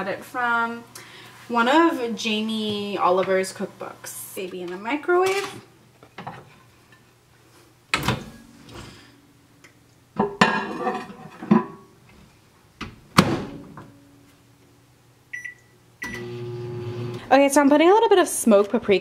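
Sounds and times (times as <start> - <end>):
microwave door opening and shutting: 7.9 - 8.4
plate set down clunking: 10.2 - 11.8.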